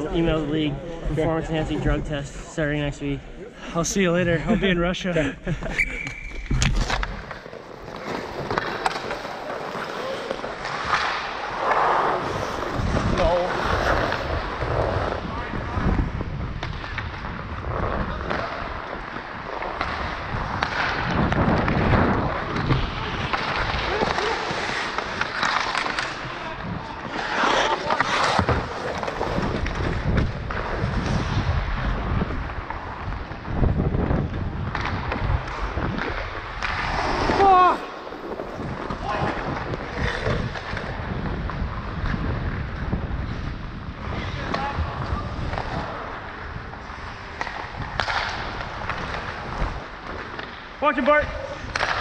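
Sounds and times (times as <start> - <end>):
skates scraping on ice: 5.6 - 52.0
hockey sticks clacking: 5.8 - 14.6, 18.1 - 31.7, 34.2 - 42.9, 44.2 - 52.0
wind rumble on microphone: 12.0 - 24.0, 28.4 - 37.4, 38.2 - 50.4.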